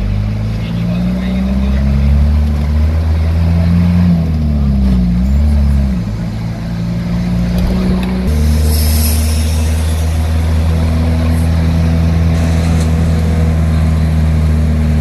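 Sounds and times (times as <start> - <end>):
road noise: 0.0 - 15.0
vehicle engine drone: 0.0 - 15.0.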